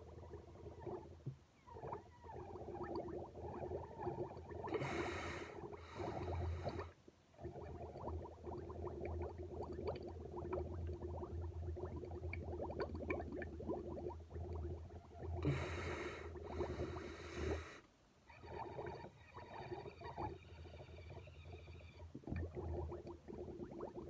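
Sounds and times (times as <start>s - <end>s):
bubbling milk through straw: 0.0s - 24.0s
breathy hiss: 4.7s - 7.0s, 15.4s - 17.9s.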